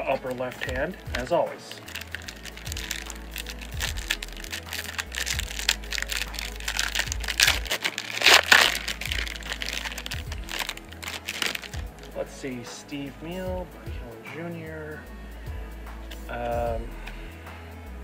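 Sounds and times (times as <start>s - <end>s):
background music with bass: 0.0s - 18.0s
foil wrapper crinkling and tearing: 0.2s - 12.2s.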